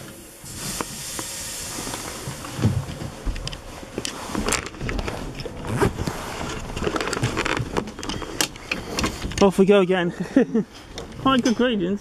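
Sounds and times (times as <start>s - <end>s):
steam hiss: 0.0s - 4.3s.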